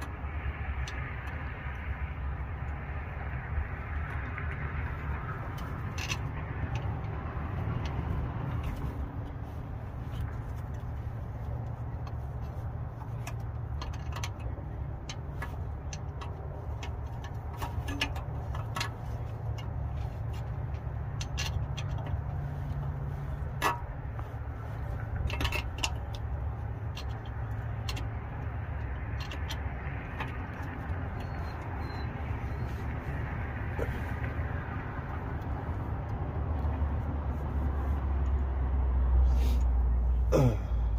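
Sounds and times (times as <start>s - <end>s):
metal tools clicking and knocking: 4.1s - 9.2s, 10.1s - 24.2s, 24.8s - 34.6s.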